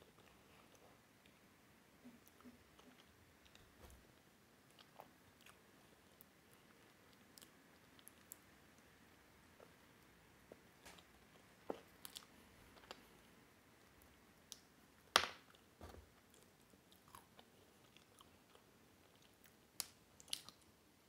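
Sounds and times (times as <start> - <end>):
wet chewing and lip smacks: 20.2 - 20.7.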